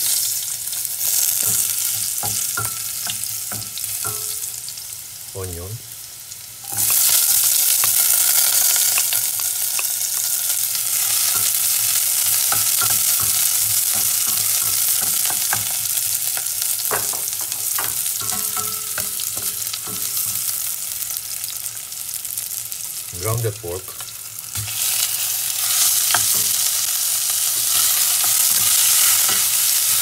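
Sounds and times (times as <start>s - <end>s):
onions sizzling in hot oil: 0.0s - 30.0s.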